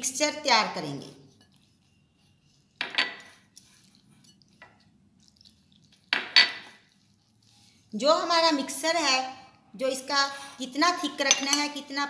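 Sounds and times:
glass bowls clinking and scraping: 1.4s - 3.5s, 6.1s - 6.8s, 11.2s - 11.8s.

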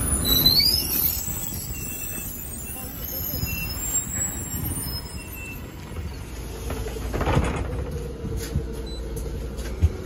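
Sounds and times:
bus engine rumble: 0.0s - 10.0s.

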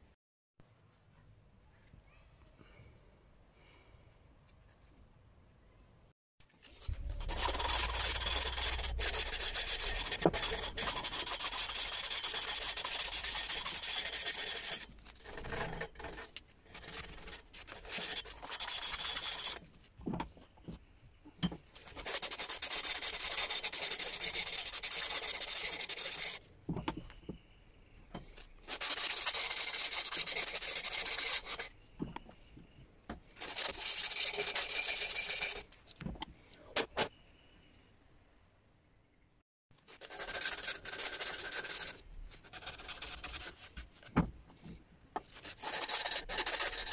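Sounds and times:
sandpaper scraping wood: 6.8s - 19.7s, 21.8s - 26.4s, 28.4s - 31.7s, 33.4s - 35.7s, 39.9s - 44.1s, 45.2s - 46.9s.

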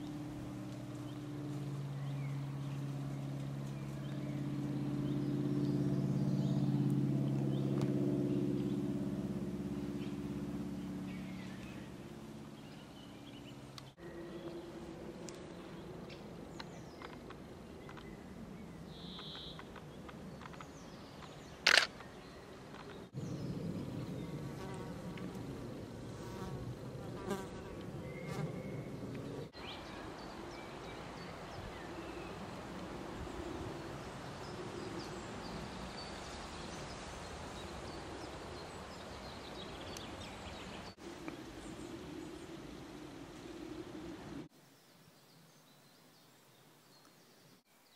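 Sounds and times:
flying insects buzzing: 23.1s - 30.6s.

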